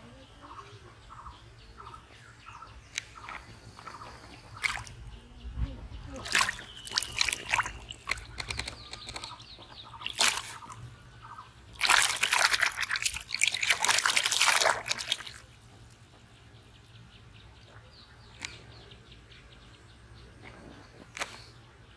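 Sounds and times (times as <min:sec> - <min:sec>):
fish splashing in water: 0:03.2 - 0:05.0, 0:06.1 - 0:10.9, 0:11.7 - 0:16.0
water dripping: 0:04.6 - 0:05.0, 0:06.1 - 0:10.8, 0:11.7 - 0:16.1.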